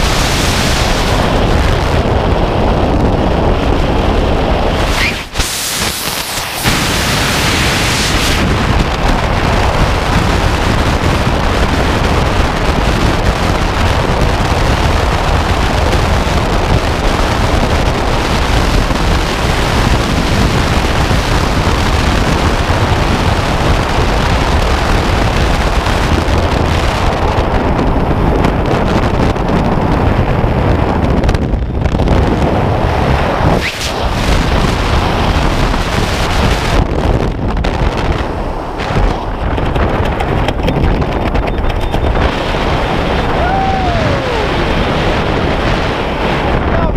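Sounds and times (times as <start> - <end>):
wind roar on microphone: 0.0 - 46.9.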